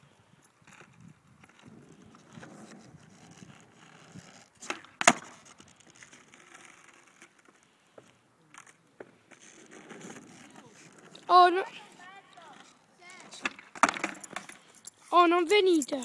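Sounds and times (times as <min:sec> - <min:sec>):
skateboard wheels rolling on asphalt: 0:00.0 - 0:16.0
skateboard landing slap: 0:04.6 - 0:05.4, 0:13.3 - 0:14.5
skateboard tail pop: 0:04.6 - 0:05.5.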